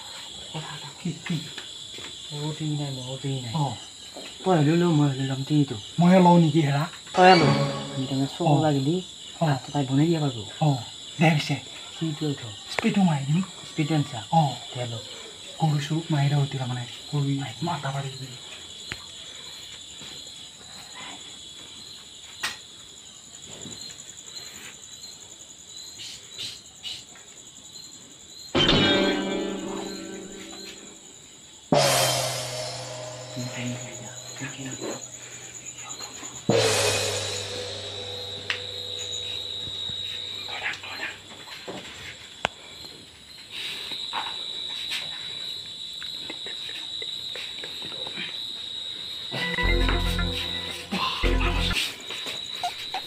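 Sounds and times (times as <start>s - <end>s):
crickets chirping: 0.0s - 53.0s
music: 7.2s - 8.7s, 28.6s - 31.0s, 31.7s - 35.1s, 36.4s - 40.1s, 49.4s - 51.9s.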